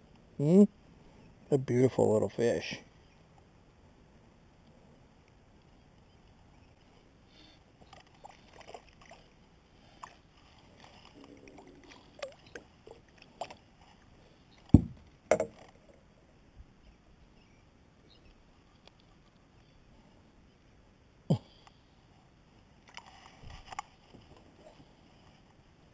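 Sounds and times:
heavy thumps against kayak: 14.8s - 15.6s.

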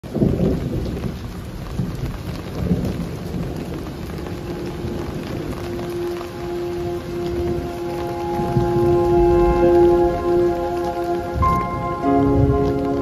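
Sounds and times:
steady rain: 0.0s - 13.0s
low rumble of thunder: 0.1s - 13.0s
held musical note: 4.2s - 13.0s.

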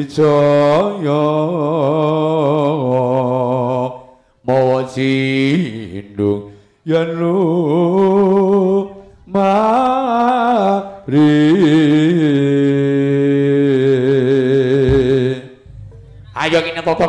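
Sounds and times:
man chanting verse: 14.9s - 17.0s.

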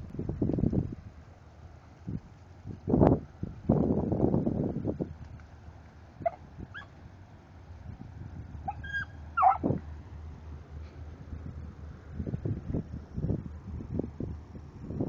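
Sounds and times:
dry reeds rustling: 0.0s - 15.0s
small dog yelping and whining: 8.7s - 9.6s.

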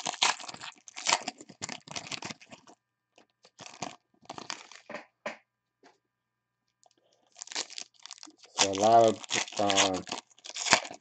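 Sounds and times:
foil wrappers crinkling and tearing: 0.0s - 2.8s, 3.4s - 4.9s, 7.3s - 11.0s.

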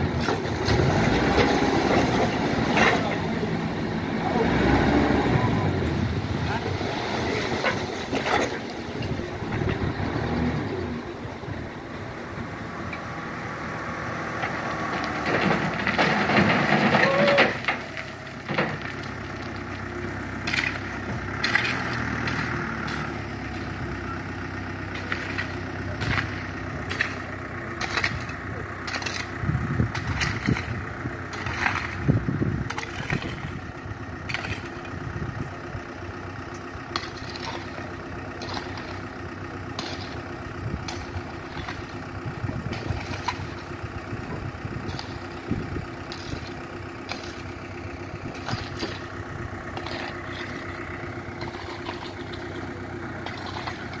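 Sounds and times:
diesel truck engine running: 0.0s - 54.0s
shovel scraping against stones: 20.4s - 23.6s, 24.9s - 33.6s, 34.3s - 34.9s, 36.9s - 37.8s, 38.4s - 39.0s, 39.8s - 40.2s, 44.8s - 45.3s, 46.1s - 47.5s, 48.3s - 54.0s.

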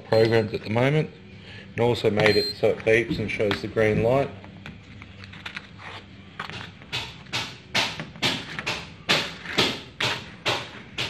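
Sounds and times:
sharp knocks: 6.9s - 11.0s.

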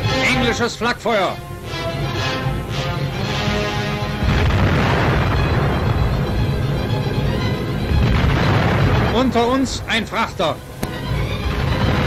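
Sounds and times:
orchestral music: 0.0s - 12.0s
rumbling battle explosions: 4.1s - 10.4s, 11.3s - 12.0s.

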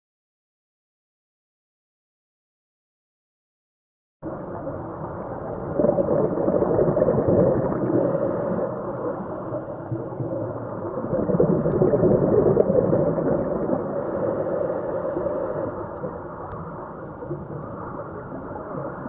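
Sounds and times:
exhaled bubbles rumbling: 4.2s - 19.0s
regulator inhale hiss: 7.8s - 9.5s, 13.9s - 16.1s.

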